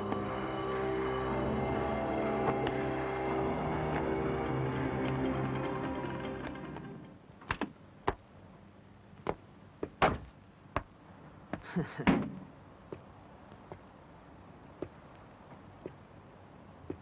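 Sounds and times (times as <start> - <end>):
background music: 0.0 - 7.2
sharp knocks and thuds: 9.2 - 13.1.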